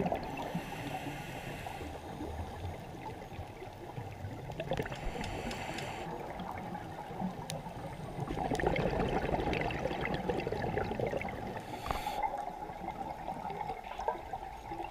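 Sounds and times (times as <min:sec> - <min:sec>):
exhaled bubbles gurgling: 0:00.0 - 0:14.9
diver breathing through regulator: 0:00.3 - 0:02.2, 0:04.8 - 0:06.1, 0:11.6 - 0:12.3.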